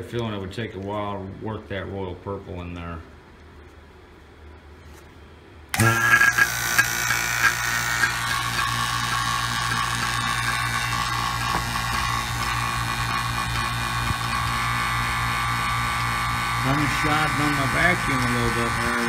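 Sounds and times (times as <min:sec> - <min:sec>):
vacuum pump humming: 0:05.7 - 0:19.0.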